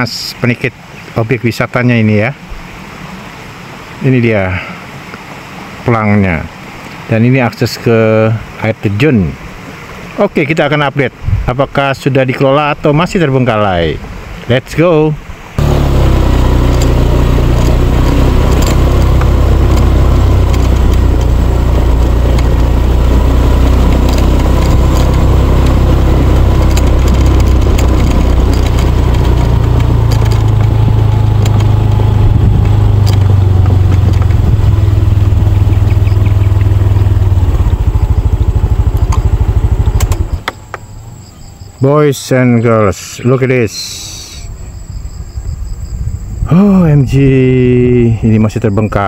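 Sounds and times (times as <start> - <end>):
wind noise on microphone: 11.2 - 11.6, 26.6 - 36.6, 44.5 - 48.1
motorcycle engine running: 15.6 - 41.6.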